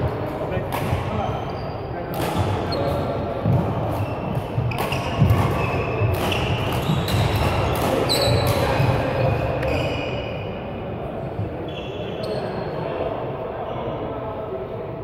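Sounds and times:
sneakers squeaking on court: 1.3s - 10.5s, 11.6s - 12.7s
racket striking shuttlecock: 2.1s - 9.0s.

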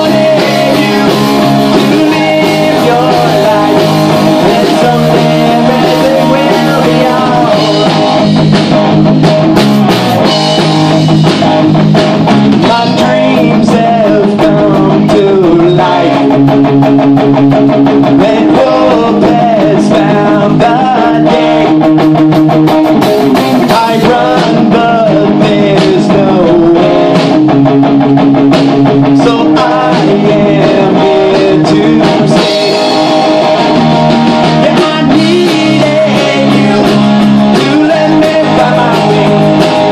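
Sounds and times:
bass guitar: 0.0s - 39.9s
drum kit: 0.0s - 39.9s
electric guitar: 0.0s - 39.9s.

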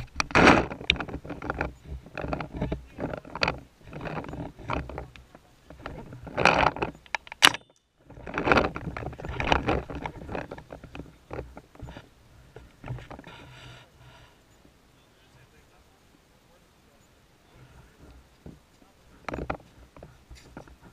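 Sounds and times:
gear rattling and knocking: 0.0s - 13.5s, 17.8s - 20.9s.

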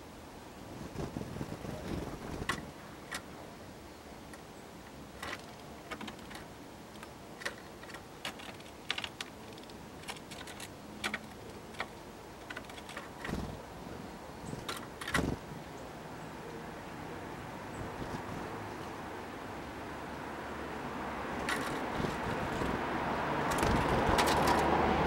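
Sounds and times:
birds pecking at wooden feeder: 4.2s - 13.7s, 14.4s - 15.4s, 21.2s - 25.0s.

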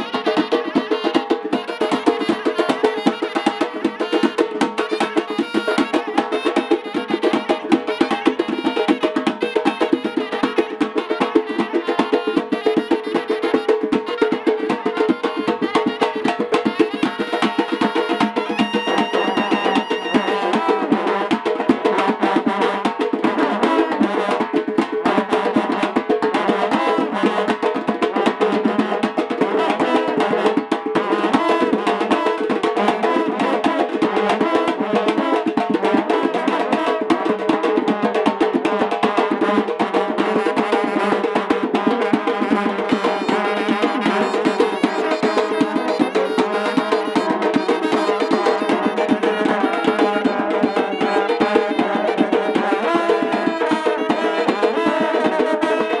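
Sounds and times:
clarinet melody: 0.0s - 20.9s, 42.6s - 52.2s
drums beating fast rhythm: 0.0s - 56.0s.

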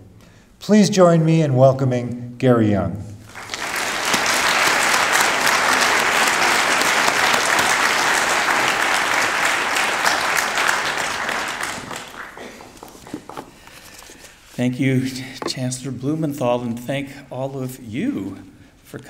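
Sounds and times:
audience applauding: 3.2s - 13.6s.

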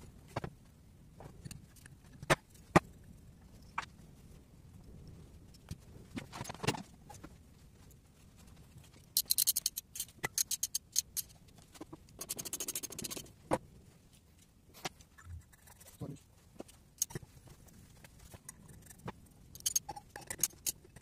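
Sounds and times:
metal tools clinking: 9.2s - 11.3s, 19.6s - 20.9s
quick even ratchet clicking: 9.2s - 11.3s, 12.2s - 13.2s.

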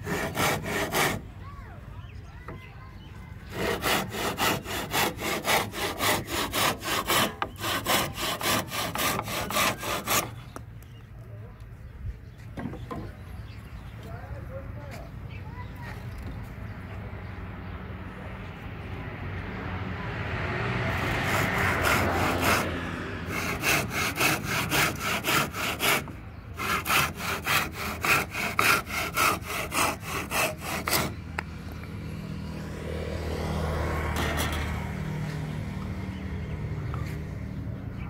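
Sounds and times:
hand saw cutting wood: 0.0s - 1.3s, 3.5s - 10.5s, 20.9s - 31.2s, 34.1s - 34.8s.

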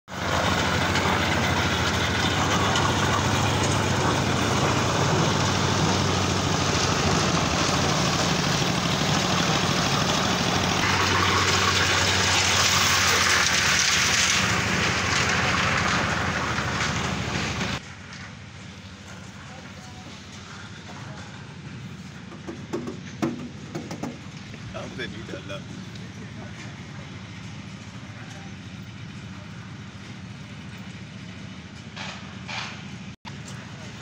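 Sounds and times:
diesel engine drone: 0.1s - 34.0s
concrete churning in drum: 21.9s - 25.5s.

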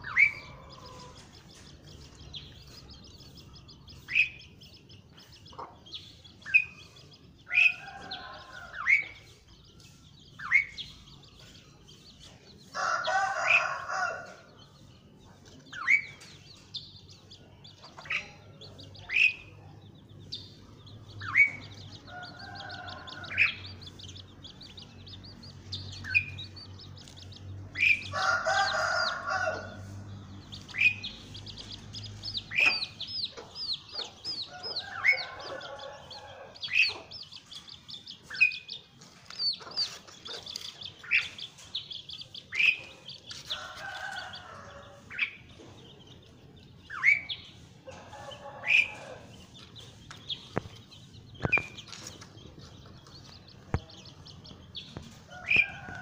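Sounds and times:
starling calling: 42.2s - 45.4s, 46.9s - 49.3s.

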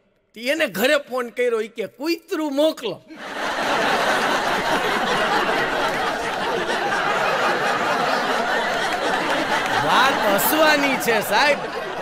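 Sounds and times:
audience laughing: 3.1s - 12.0s.

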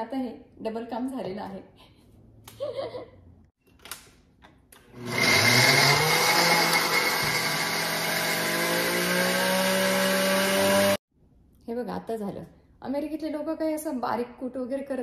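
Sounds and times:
blender grinding peanuts: 4.9s - 11.0s.

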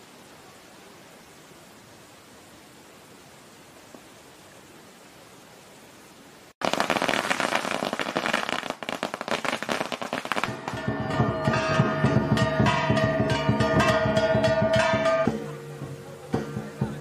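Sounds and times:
faint steady hiss: 0.0s - 17.0s
firecrackers crackling: 6.6s - 17.0s
drumbeats: 10.0s - 17.0s
gong ringing: 10.5s - 16.6s.

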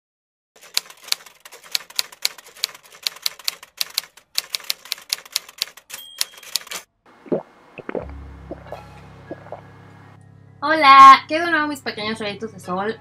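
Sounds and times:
typewriter keys clacking: 0.6s - 6.9s
typewriter bell ring: 5.6s - 6.9s.

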